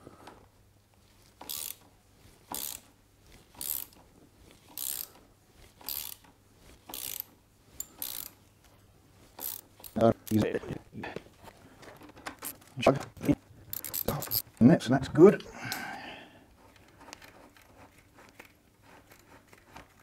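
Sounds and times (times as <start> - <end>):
socket ratchet clicking: 1.4 - 1.8, 2.5 - 2.9, 3.6 - 4.0, 4.7 - 5.2, 5.8 - 6.3, 6.9 - 8.4, 9.4 - 10.4, 13.7 - 14.4.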